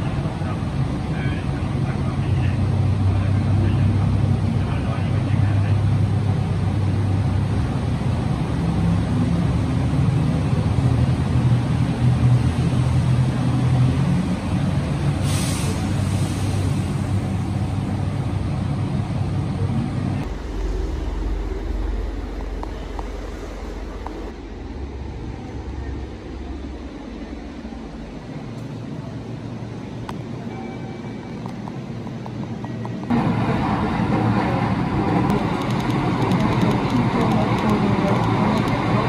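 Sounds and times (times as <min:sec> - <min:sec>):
train running: 0:00.0 - 0:39.0
air hiss: 0:15.2 - 0:17.2.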